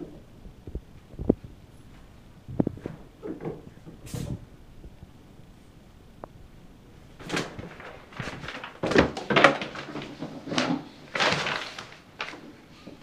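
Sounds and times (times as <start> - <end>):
shower curtain rustling: 4.0 - 4.5, 7.0 - 13.0.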